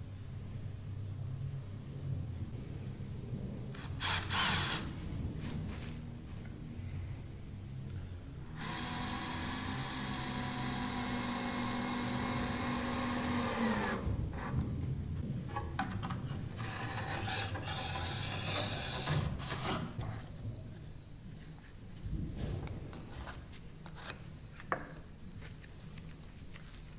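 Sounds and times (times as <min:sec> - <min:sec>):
cordless drill boring into wood: 0:03.8 - 0:04.9, 0:08.5 - 0:14.2
wood scraping and rubbing: 0:15.5 - 0:20.2.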